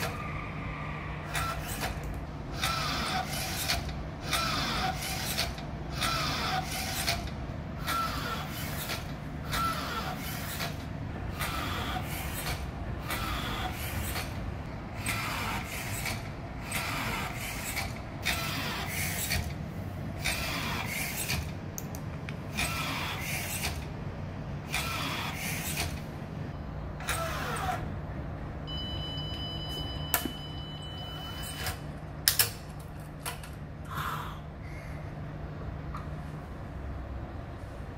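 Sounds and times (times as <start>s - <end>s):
steady motor hum: 0.0s - 37.9s
steady high beep: 28.6s - 31.7s.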